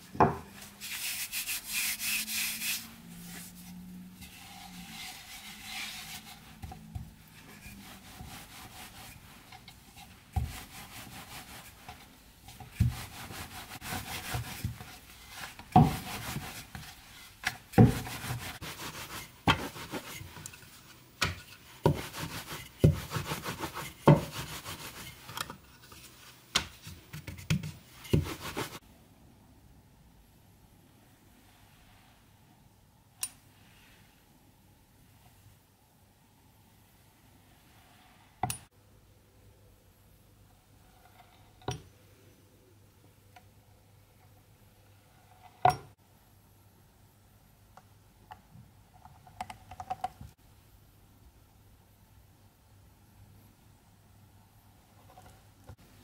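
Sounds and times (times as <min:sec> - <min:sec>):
rolling pin rubbing dough: 0:00.6 - 0:20.8, 0:21.6 - 0:25.4, 0:27.1 - 0:28.8.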